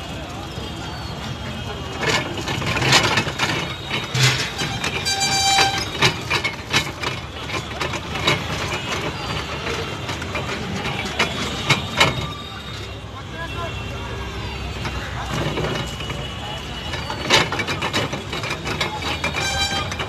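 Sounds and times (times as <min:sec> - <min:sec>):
juice crusher rollers clacking: 0:01.2 - 0:20.0
background din: 0:02.0 - 0:13.0.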